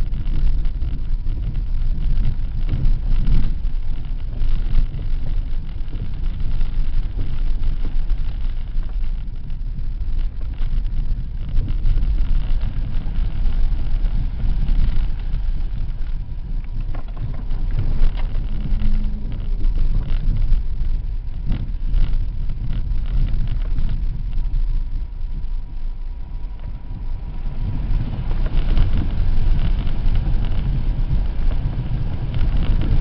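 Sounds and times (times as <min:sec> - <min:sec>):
car engine running: 0:00.0 - 0:33.0
tyre noise: 0:00.0 - 0:33.0
knocks from rough road: 0:14.5 - 0:24.5.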